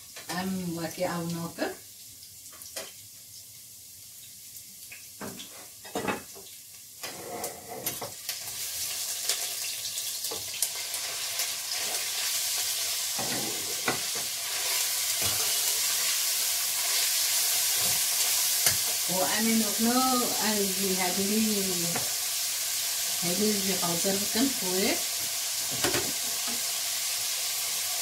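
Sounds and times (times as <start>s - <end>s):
meat sizzling in hot oil: 0.0s - 7.2s, 7.8s - 28.0s.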